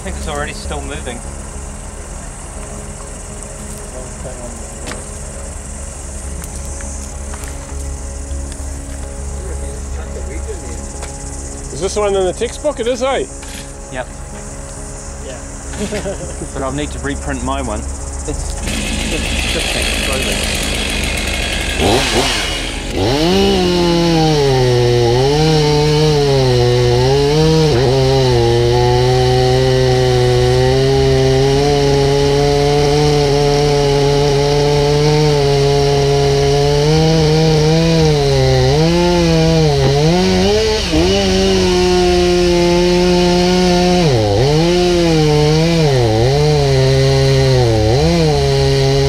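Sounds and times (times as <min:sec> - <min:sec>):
chainsaw cutting wood: 0:10.1 - 0:14.8, 0:15.6 - 0:16.8, 0:17.9 - 0:49.0.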